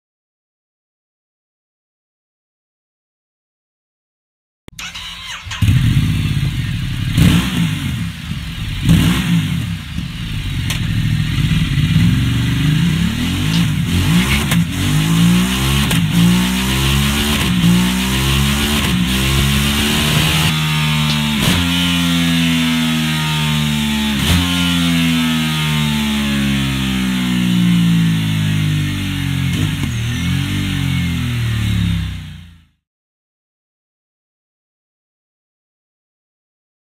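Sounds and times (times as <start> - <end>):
motorcycle engine revving: 4.7 - 32.8.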